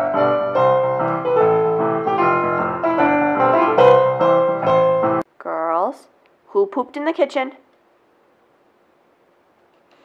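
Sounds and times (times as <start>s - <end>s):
electronic keyboard piano melody: 0.0s - 5.2s.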